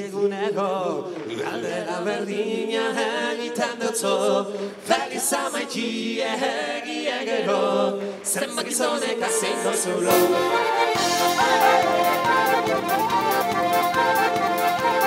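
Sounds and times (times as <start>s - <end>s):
women singing in harmony: 0.6s - 15.0s
band playing: 10.1s - 15.0s.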